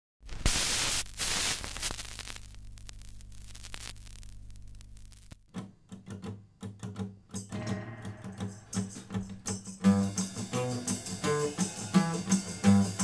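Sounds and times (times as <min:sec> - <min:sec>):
vinyl record crackle and clicks: 0:00.2 - 0:05.5
music with plucked low notes: 0:07.4 - 0:13.0.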